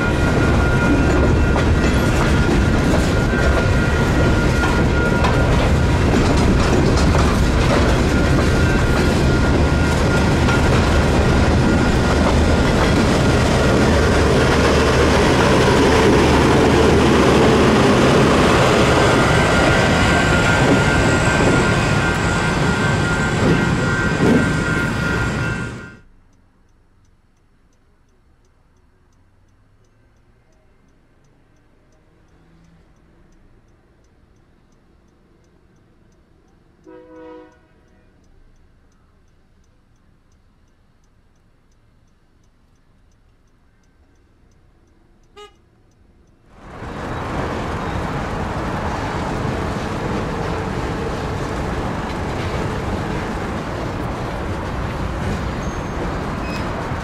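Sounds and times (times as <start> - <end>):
loud even rushing noise: 0.0 - 26.0
distant horn toot: 36.8 - 38.2, 45.3 - 45.6.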